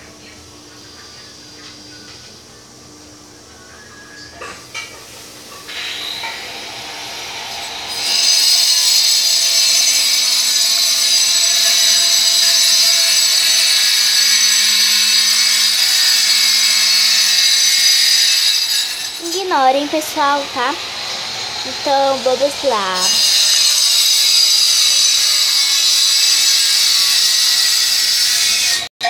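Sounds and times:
electric motor whine: 5.2s - 28.0s.

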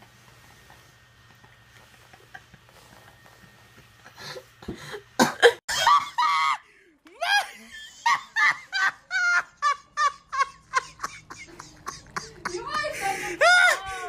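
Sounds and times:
person laughing hard: 4.8s - 6.6s, 7.2s - 14.0s.

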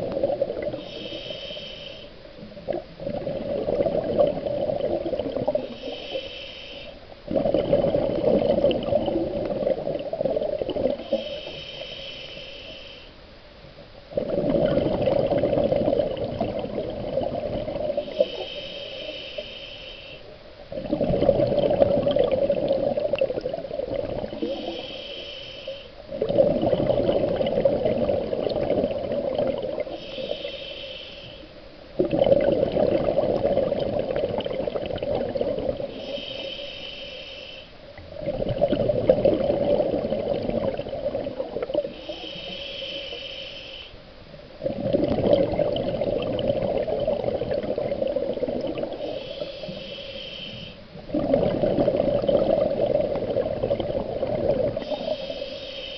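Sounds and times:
exhaled bubbles rushing: 0.0s - 0.8s, 2.7s - 5.8s, 7.3s - 11.0s, 14.1s - 18.1s, 20.7s - 24.5s, 26.1s - 30.0s, 32.0s - 36.0s, 38.0s - 41.9s, 44.6s - 49.2s, 51.0s - 55.1s
regulator inhale hiss: 0.6s - 2.4s, 5.5s - 7.2s, 10.8s - 13.3s, 17.9s - 20.4s, 24.3s - 26.2s, 29.7s - 31.8s, 35.8s - 38.0s, 41.8s - 44.2s, 48.8s - 51.0s, 54.7s - 55.9s.

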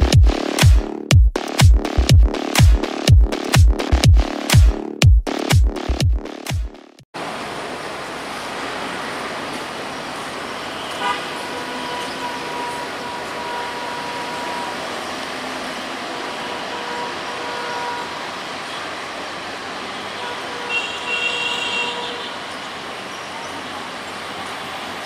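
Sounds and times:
electronic music: 0.0s - 7.0s
traffic and rail noise: 7.2s - 25.0s
horn sounding: 10.9s - 15.1s, 16.0s - 18.3s.

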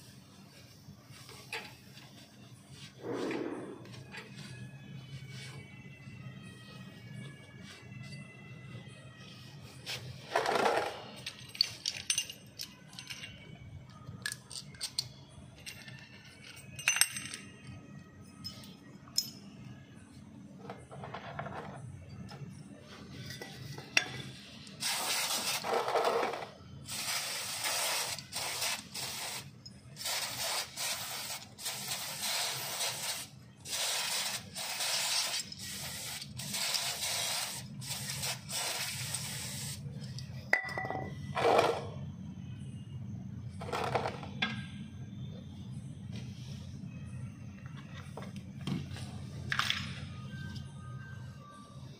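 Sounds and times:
metal parts clinking: 10.3s - 19.6s.

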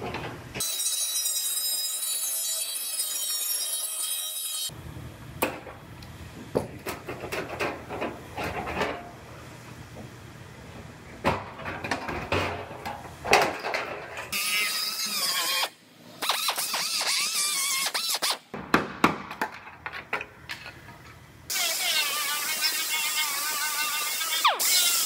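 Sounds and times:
cut-off wheel cutting sheet metal: 14.3s - 18.4s, 21.5s - 25.0s.

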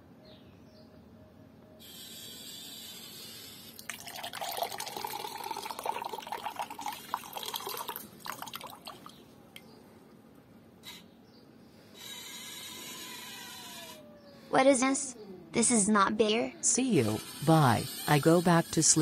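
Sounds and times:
water pouring into a glass: 3.8s - 9.2s.

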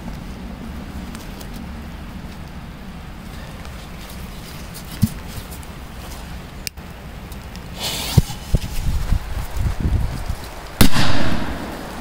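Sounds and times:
firecracker bang: 10.8s - 12.0s.

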